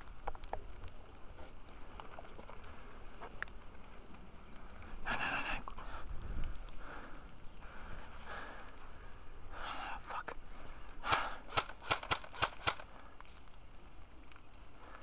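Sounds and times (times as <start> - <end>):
faint sharp clicks: 0.0 - 4.9, 14.2 - 14.6
wind rumble on microphone: 3.0 - 8.1.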